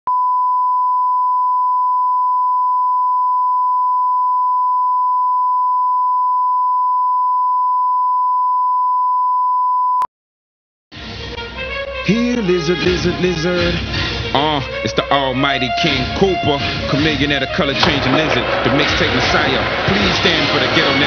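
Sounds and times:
pure test tone: 0.1 - 10.1.

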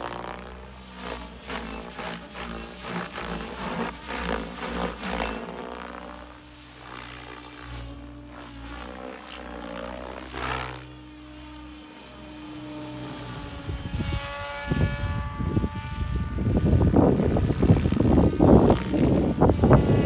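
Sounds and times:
rc helicopter rotor whine: 0.0 - 20.0
wind buffeting microphone: 13.4 - 20.0.

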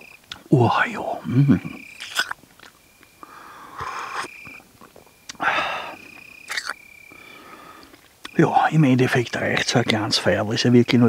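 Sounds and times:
man sighing exhales: 5.4 - 6.0.

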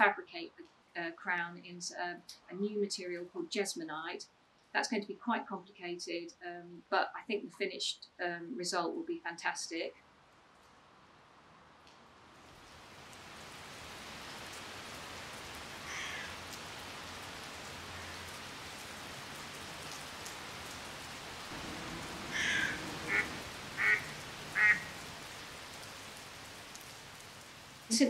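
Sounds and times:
rain falling on water: 11.8 - 28.0
ducks quacking: 21.5 - 25.0.

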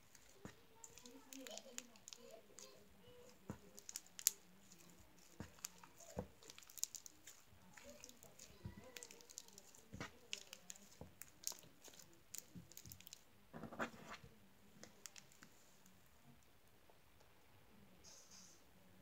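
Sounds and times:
slime squelch: 0.0 - 14.2
slime squishing: 0.0 - 14.2, 14.8 - 15.6.

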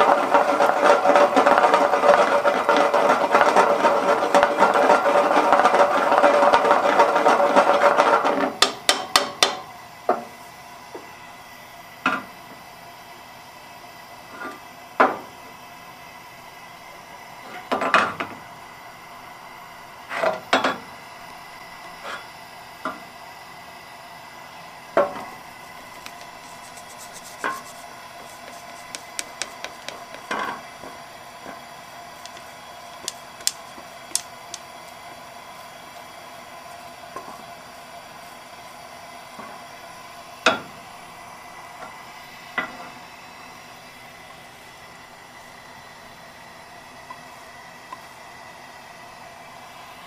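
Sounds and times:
pan knocking on stove: 4.4 - 9.6, 25.8 - 30.6
faint steady hum: 8.8 - 50.0
chopsticks tapping a metal pan: 28.4 - 30.4.

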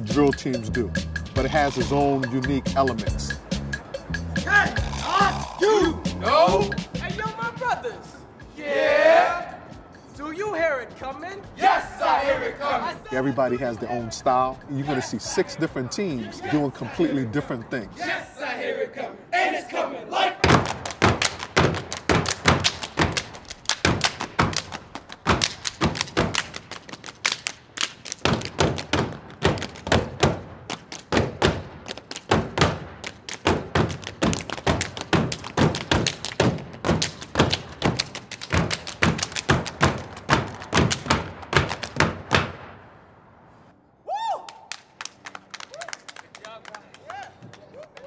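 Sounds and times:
people clapping in unison: 20.5 - 42.2, 44.4 - 48.0
stomping on wooden steps: 28.2 - 42.5.

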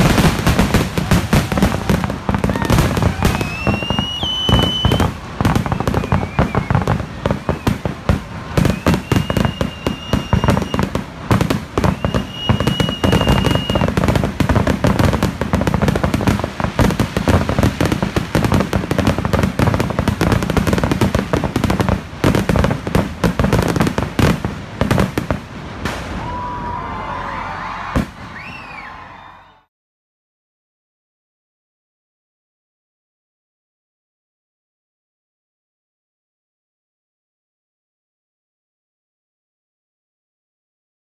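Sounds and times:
fireworks bangs and crackling: 0.0 - 29.5
long high firework whistles: 0.0 - 29.7.

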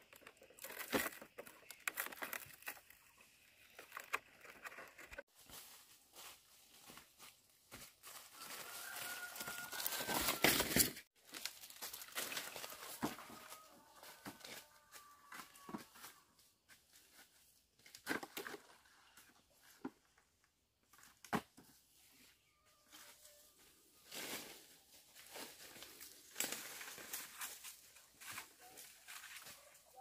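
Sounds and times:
dry leaves crunching underfoot: 5.2 - 16.1, 24.0 - 30.0
brushing through undergrowth: 5.2 - 16.2, 24.0 - 30.0.

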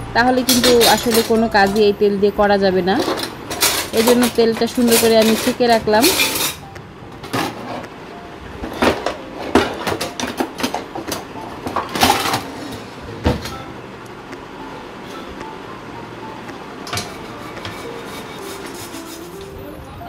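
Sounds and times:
metal utensils clattering: 0.2 - 2.0, 2.8 - 7.8, 8.6 - 13.6, 16.8 - 19.0.

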